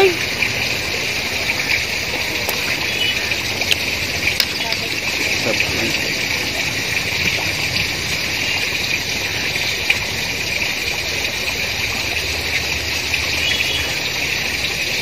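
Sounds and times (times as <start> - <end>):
flowing water rushing: 0.0 - 15.0.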